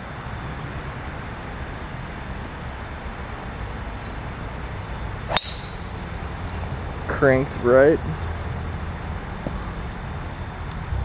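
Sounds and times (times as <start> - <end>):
high-pitched whine: 0.0 - 11.0
golf club striking ball: 5.3 - 5.9.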